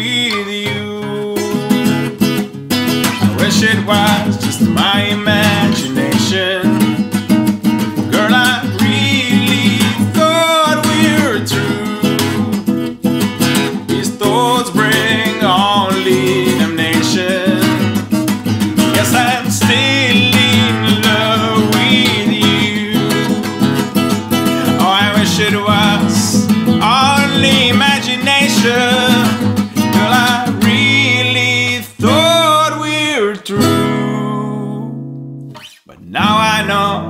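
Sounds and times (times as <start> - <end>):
acoustic guitar: 0.0 - 37.0
man singing held notes: 35.8 - 37.0.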